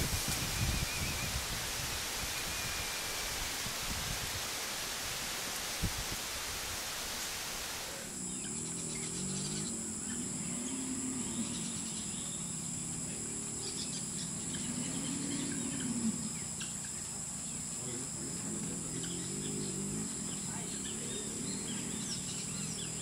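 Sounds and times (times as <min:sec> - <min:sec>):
insects buzzing: 0:00.0 - 0:23.0
low wavering calls: 0:07.8 - 0:23.0.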